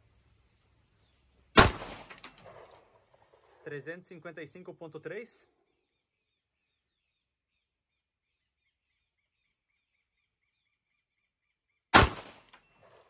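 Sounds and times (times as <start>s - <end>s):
pistol shot with echo: 1.6s - 3.6s, 12.0s - 13.0s
faint bird chirps: 5.5s - 11.9s.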